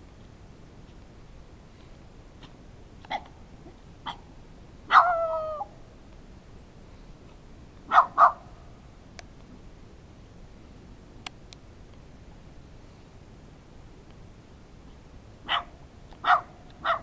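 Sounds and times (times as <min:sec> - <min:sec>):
small dog barking: 0:02.4 - 0:03.3, 0:04.0 - 0:04.3, 0:04.9 - 0:05.7, 0:07.8 - 0:08.5, 0:15.4 - 0:17.0.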